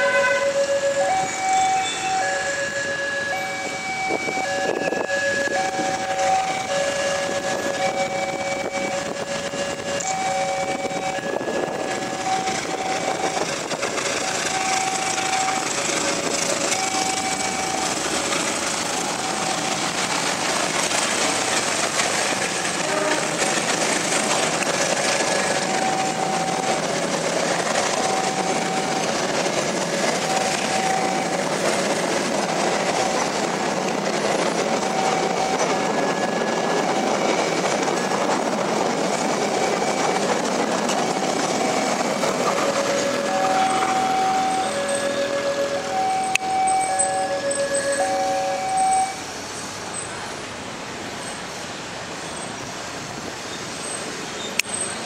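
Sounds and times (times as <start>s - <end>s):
level-crossing alarm chiming: 0.0s - 19.8s, 24.6s - 31.8s, 32.8s - 38.2s, 39.2s - 49.2s
train passing: 0.0s - 55.0s.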